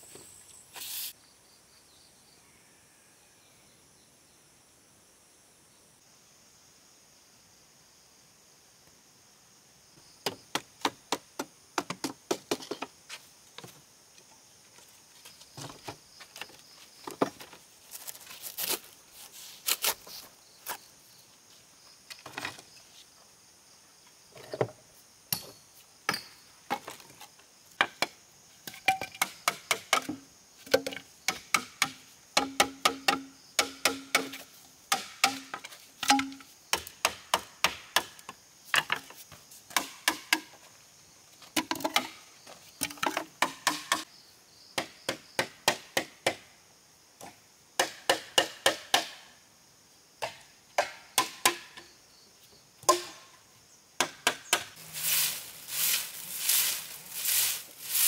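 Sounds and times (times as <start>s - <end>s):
hatchet striking bamboo: 27.8s - 39.1s, 39.7s - 40.5s, 42.8s - 44.1s, 44.8s - 46.4s, 47.8s - 49.3s, 50.2s - 51.9s, 52.8s - 53.2s, 54.0s - 54.8s.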